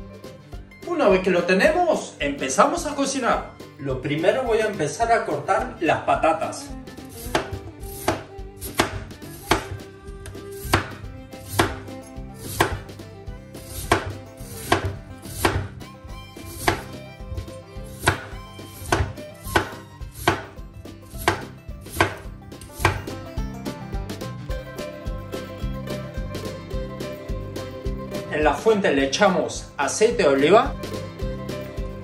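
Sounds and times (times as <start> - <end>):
knife slicing on wooden board: 7.0 - 15.8, 16.4 - 23.2.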